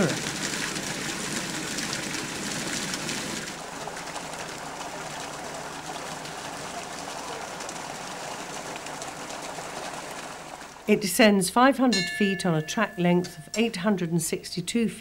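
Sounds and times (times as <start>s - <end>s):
running water rushing: 0.0s - 11.1s.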